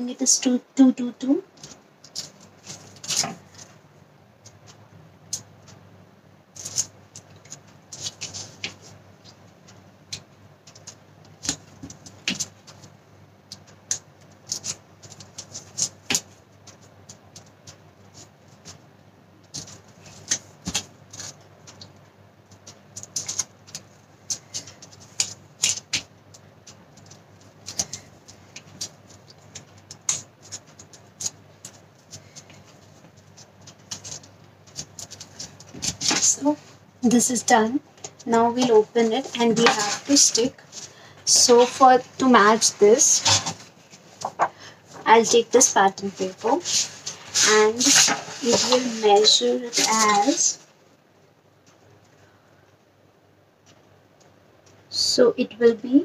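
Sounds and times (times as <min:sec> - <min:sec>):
paper rustling: 0:01.6 - 0:03.8, 0:06.5 - 0:09.4, 0:19.4 - 0:50.6.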